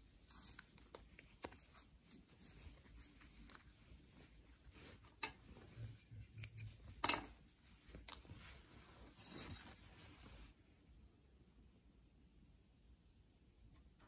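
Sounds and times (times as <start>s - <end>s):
fabric and thread rustling: 0.0s - 10.7s.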